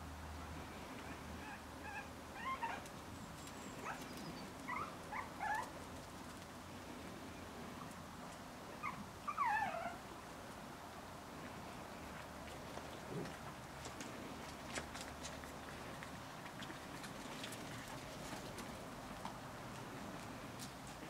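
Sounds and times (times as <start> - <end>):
puppies squeaking and whimpering: 3.8 - 5.7, 8.8 - 10.0.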